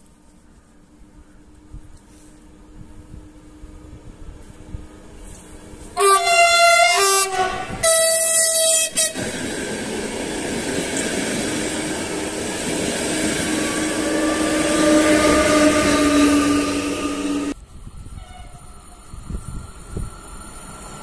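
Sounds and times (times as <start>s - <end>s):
locomotive humming: 0.0s - 21.0s
train horn blasts: 6.0s - 9.3s, 13.5s - 18.7s
train wheels rolling: 7.3s - 21.0s.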